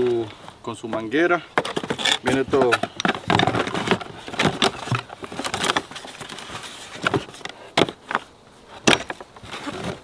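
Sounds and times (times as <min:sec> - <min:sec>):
boxes and hand pump handled: 0:00.0 - 0:10.0.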